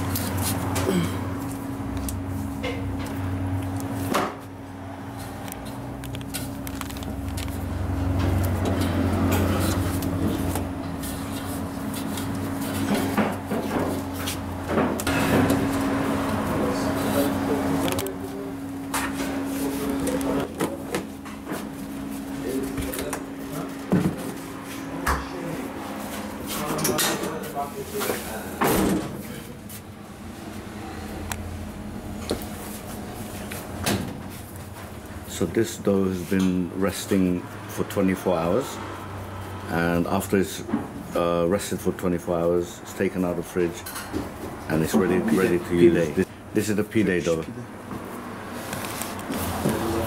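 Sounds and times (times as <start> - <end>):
low machine hum: 0.0 - 50.0.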